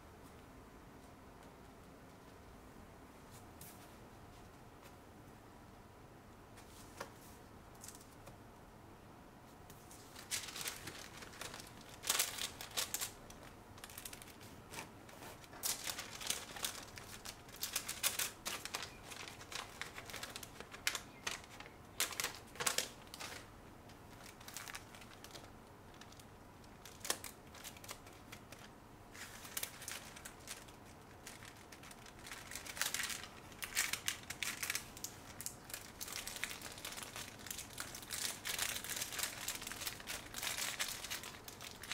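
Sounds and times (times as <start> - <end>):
wrapping paper rustling: 9.9 - 41.9.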